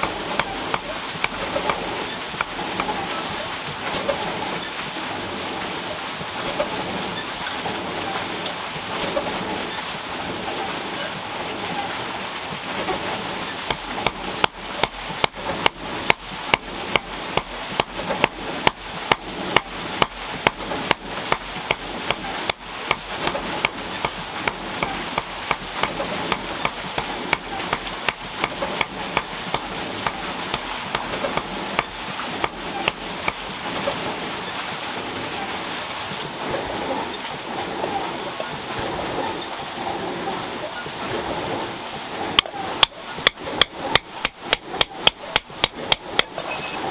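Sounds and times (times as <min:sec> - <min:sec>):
hammer striking hot iron: 0:00.0 - 0:01.8, 0:06.0 - 0:06.2, 0:13.7 - 0:33.4, 0:42.4 - 0:46.4.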